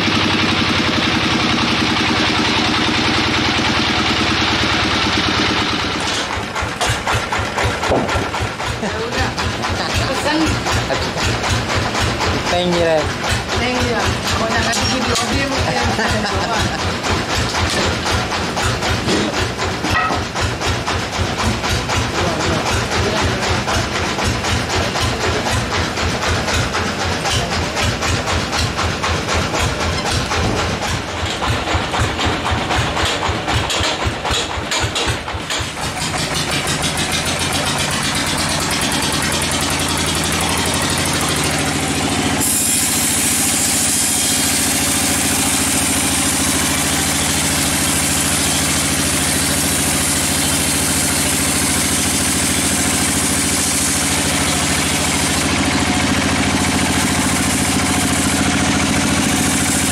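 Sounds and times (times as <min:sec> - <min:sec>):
sawmill machine running: 0:00.0 - 0:59.9
saw blade hissing through log: 0:42.1 - 0:55.8, 0:56.6 - 0:59.9.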